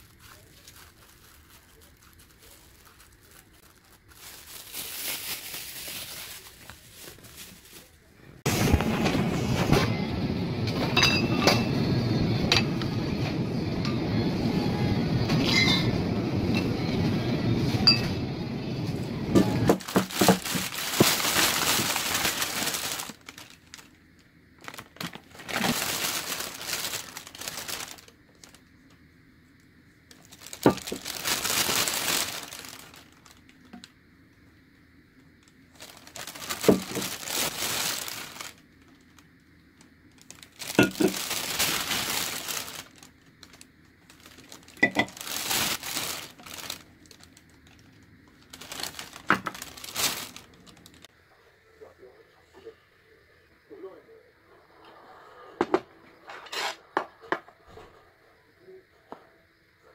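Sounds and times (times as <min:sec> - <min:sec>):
plastic bag crinkling: 0:00.0 - 0:09.4, 0:19.4 - 0:24.0, 0:24.6 - 0:28.8, 0:30.1 - 0:33.9, 0:35.4 - 0:51.1.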